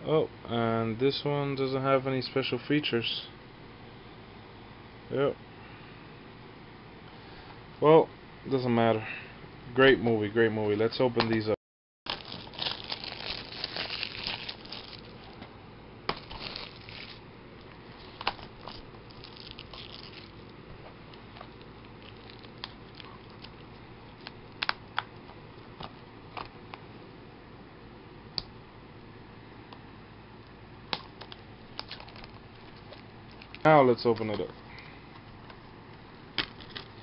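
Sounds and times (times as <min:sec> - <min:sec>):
plastic shrink wrap tearing and crinkling: 0:12.1 - 0:15.4, 0:16.1 - 0:17.2, 0:18.0 - 0:20.4, 0:22.0 - 0:23.6.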